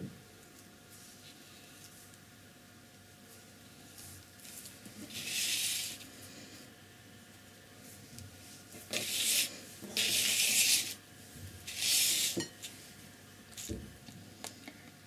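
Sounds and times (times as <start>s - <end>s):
paper sliding on table: 11.7s - 12.4s.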